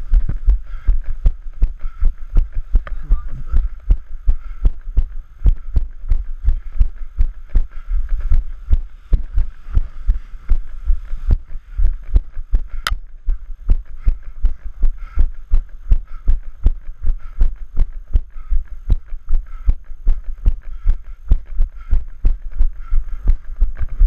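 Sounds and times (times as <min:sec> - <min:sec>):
footsteps on stony dirt path: 0:00.0 - 0:24.0
sharp tick: 0:12.8 - 0:13.0.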